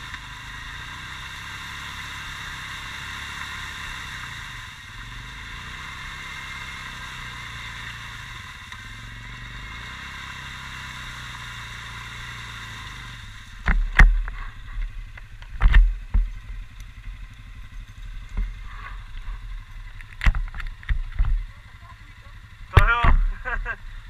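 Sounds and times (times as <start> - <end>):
quad bike engine running: 0.0 - 24.0
loud thumps and knocks: 22.8 - 23.5.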